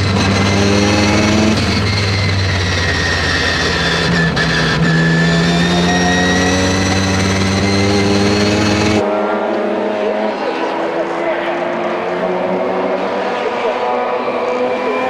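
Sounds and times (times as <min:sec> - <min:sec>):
high whine: 0:00.0 - 0:09.0
rotary engine revving: 0:00.0 - 0:15.0.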